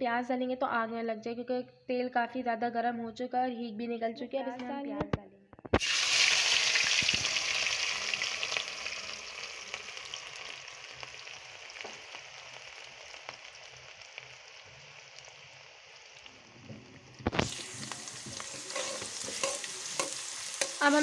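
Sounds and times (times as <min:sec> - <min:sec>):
oil popping: 0:05.6 - 0:10.0, 0:16.2 - 0:20.8
onions sizzling in hot oil: 0:05.8 - 0:21.0
spatula stirring onions: 0:17.2 - 0:21.0.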